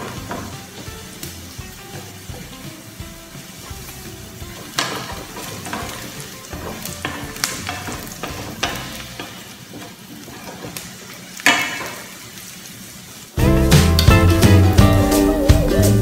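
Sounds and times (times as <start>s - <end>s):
wooden spatula scraping a pan: 0.0s - 2.7s, 3.4s - 12.1s
onions sizzling in oil: 0.0s - 16.0s.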